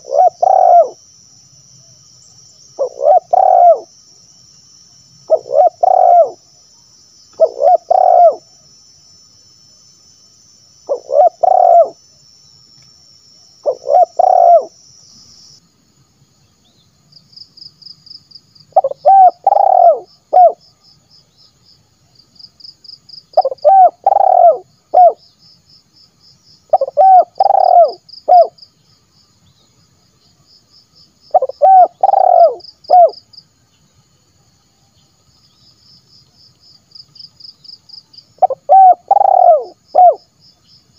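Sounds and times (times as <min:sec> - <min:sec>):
dove cooing: 0:00.0 - 0:01.0, 0:02.8 - 0:03.9, 0:05.3 - 0:06.4, 0:07.4 - 0:08.6, 0:10.9 - 0:12.0, 0:13.6 - 0:14.8, 0:18.7 - 0:20.6, 0:23.3 - 0:25.2, 0:26.7 - 0:28.6, 0:31.3 - 0:33.2, 0:38.4 - 0:40.2.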